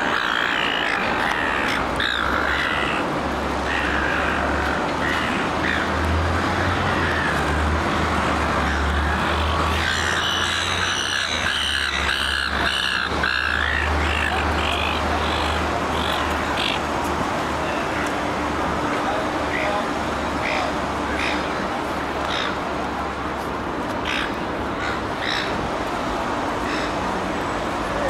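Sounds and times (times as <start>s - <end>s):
gulls squawking: 0.0s - 7.5s, 8.6s - 16.9s, 24.0s - 25.6s
city traffic rumble: 0.0s - 28.0s.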